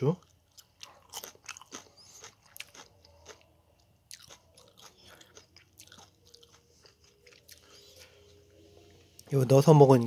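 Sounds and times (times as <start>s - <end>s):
chewing: 0.2s - 8.4s.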